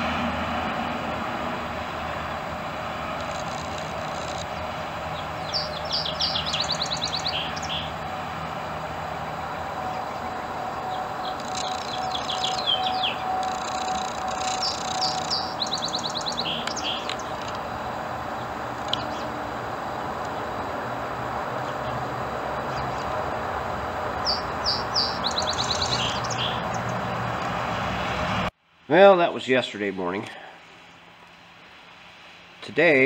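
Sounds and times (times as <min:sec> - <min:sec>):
finch singing: 0:03.3 - 0:08.0, 0:09.8 - 0:17.6, 0:18.3 - 0:19.3, 0:24.2 - 0:27.0.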